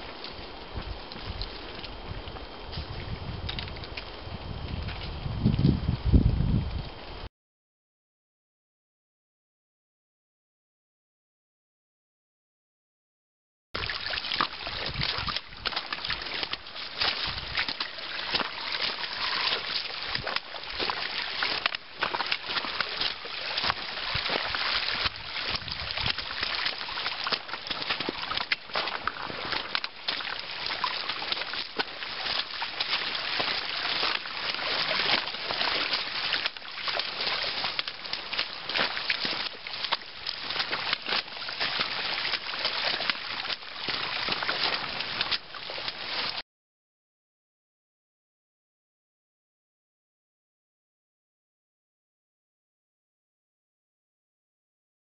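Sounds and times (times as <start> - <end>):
footsteps splashing through water: 0.0 - 5.7, 13.8 - 46.4
water running over rocks: 0.0 - 6.9, 13.8 - 46.4.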